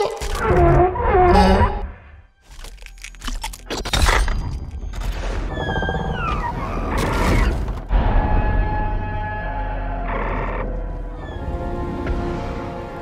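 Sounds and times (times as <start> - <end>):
held tones of film score: 4.7 - 13.0.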